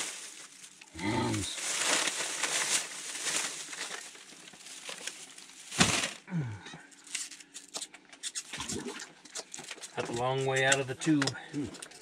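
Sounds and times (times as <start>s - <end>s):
plastic bag rustling: 0.0s - 6.3s.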